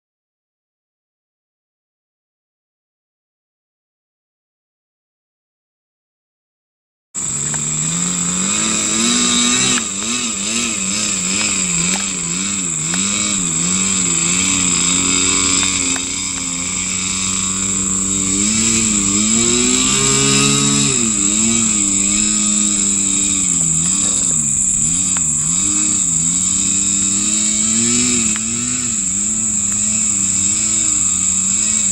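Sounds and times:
model airplane engine whining: 0:07.2 - 0:31.9.

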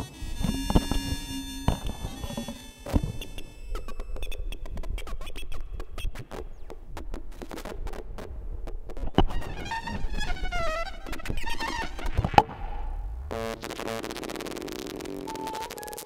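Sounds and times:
high steady synthesizer tones: 0:00.0 - 0:08.0
irregular crackling clicks: 0:00.4 - 0:12.4.

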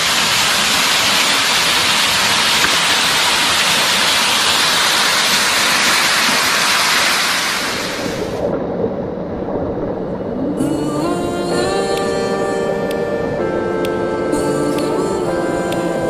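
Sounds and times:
waterfall rushing: 0:00.0 - 0:08.4.

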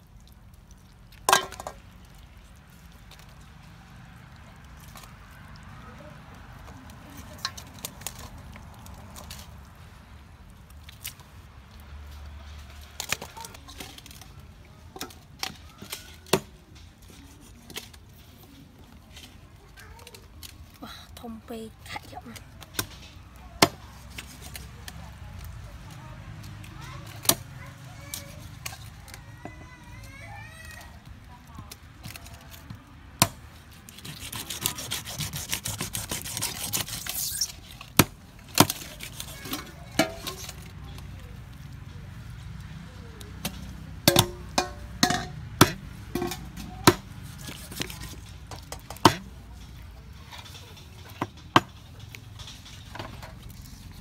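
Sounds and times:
knife scraping cuts: 0:33.2 - 0:40.6, 0:45.6 - 0:49.3
cleaver chopping on wooden board: 0:44.1 - 0:47.9, 0:49.0 - 0:49.3.

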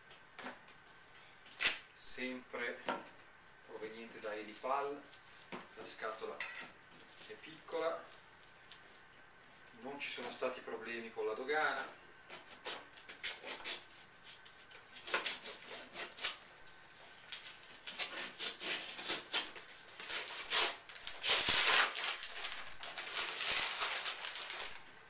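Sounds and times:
packing tape tearing off cardboard: 0:01.5 - 0:01.8, 0:11.6 - 0:16.5, 0:17.2 - 0:24.9
cardboard and paper rustling: 0:19.6 - 0:25.0.

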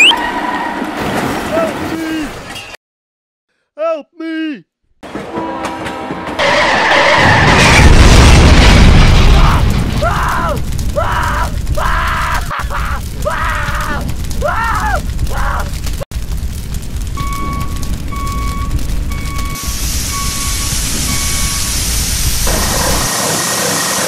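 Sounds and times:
explosion boom with rumble: 0:07.1 - 0:12.4, 0:13.0 - 0:23.1
voice wailing: 0:09.4 - 0:15.8.

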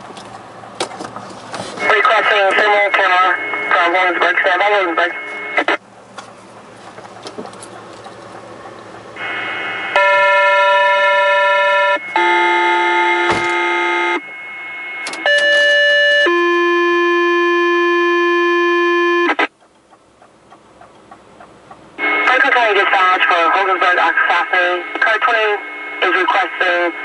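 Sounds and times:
pager tones over radio speaker: 0:01.8 - 0:05.8, 0:09.2 - 0:14.3, 0:15.2 - 0:19.5, 0:22.0 - 0:27.0.

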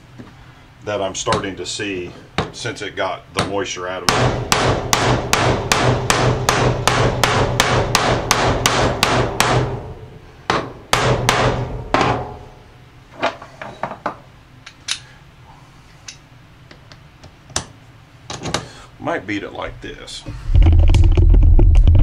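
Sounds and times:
hammer striking metal: 0:04.1 - 0:12.6.

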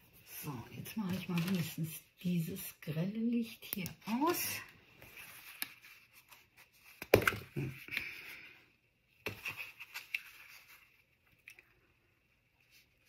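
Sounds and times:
cardstock card handling: 0:01.1 - 0:01.8, 0:09.2 - 0:11.6.

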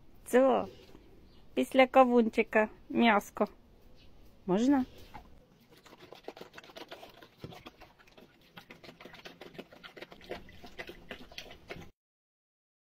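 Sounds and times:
dog chewing wetly: 0:05.1 - 0:11.9.

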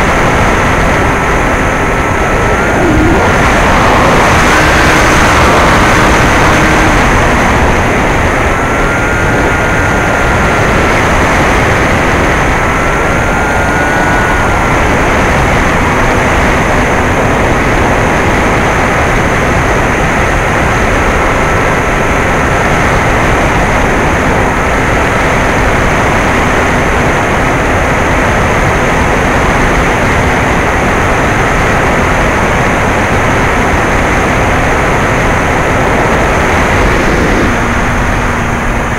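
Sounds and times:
rush of airflow: 0:00.0 - 0:19.8, 0:34.1 - 0:38.9
electric motor and propeller whining: 0:00.0 - 0:38.9.

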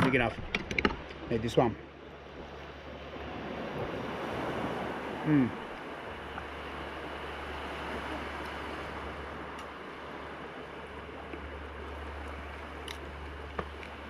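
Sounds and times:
surf washing on beach: 0:00.0 - 0:14.0
man murmuring mm: 0:05.2 - 0:05.6.

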